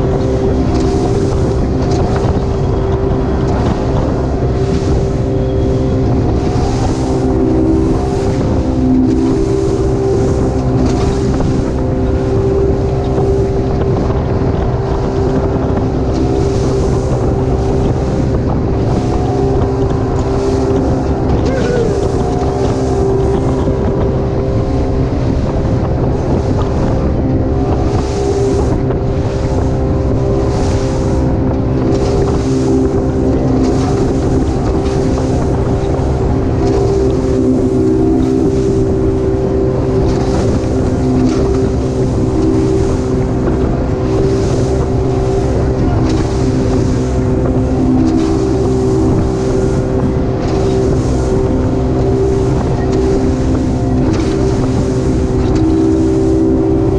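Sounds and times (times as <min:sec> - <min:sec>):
motorboat engine droning: 0:00.0 - 0:56.9
water rushing along hull: 0:00.0 - 0:56.9
wind rumbling on microphone: 0:00.0 - 0:56.9.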